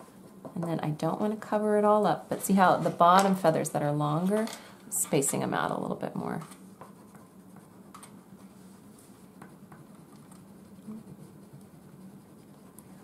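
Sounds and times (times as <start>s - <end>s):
low steady hum: 0.0s - 13.0s
crayons scratching on paper: 6.8s - 13.0s.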